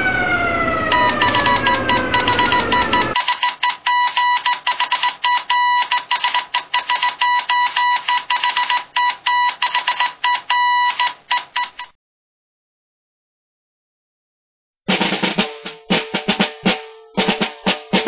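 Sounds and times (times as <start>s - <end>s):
morse code beeping: 0.8s - 9.6s.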